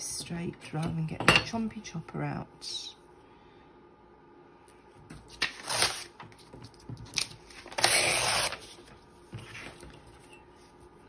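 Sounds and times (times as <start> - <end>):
paper rustling: 5.1 - 10.3.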